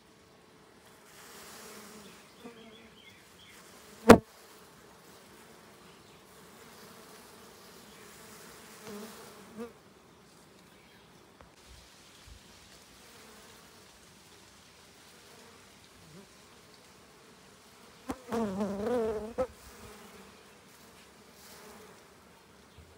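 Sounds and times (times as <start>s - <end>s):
bees buzzing: 1.1s - 4.3s, 5.5s - 9.7s, 17.9s - 22.0s.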